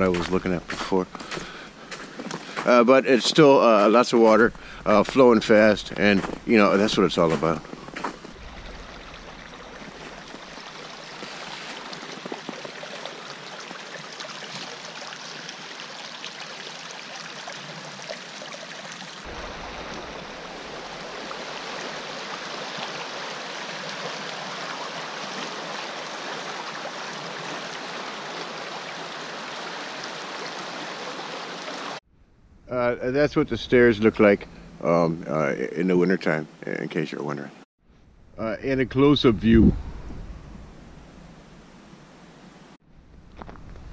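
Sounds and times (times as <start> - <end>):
creek rushing: 0.0 - 32.0.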